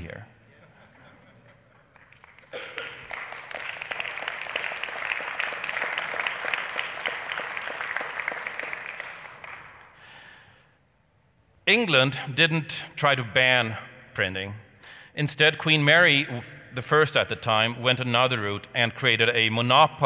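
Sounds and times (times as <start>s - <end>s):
audience applause: 1.7s - 10.0s.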